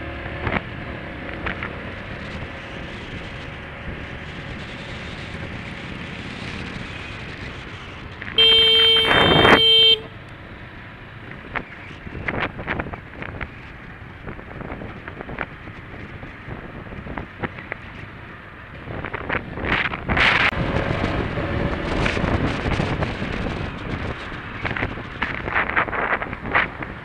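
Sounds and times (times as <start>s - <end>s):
motorcycle engine: 0.0s - 27.0s
road noise: 0.0s - 27.0s
wind buffeting microphone: 11.4s - 27.0s.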